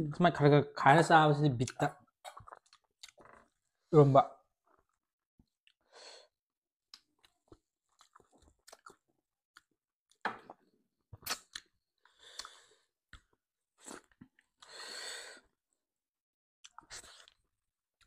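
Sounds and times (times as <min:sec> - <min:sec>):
people chewing food: 0:01.7 - 0:03.7, 0:06.9 - 0:09.8, 0:11.2 - 0:14.8, 0:16.6 - 0:17.5.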